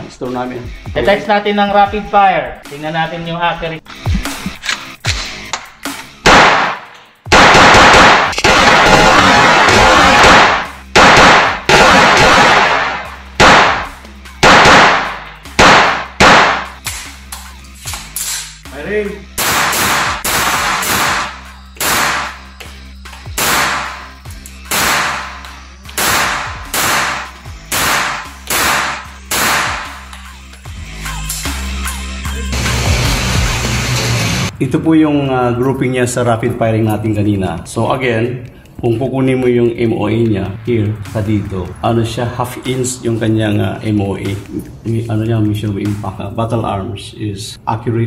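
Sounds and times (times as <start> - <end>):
gunshots ringing indoors: 6.3 - 16.8, 19.4 - 22.4, 23.4 - 25.4, 26.0 - 30.0.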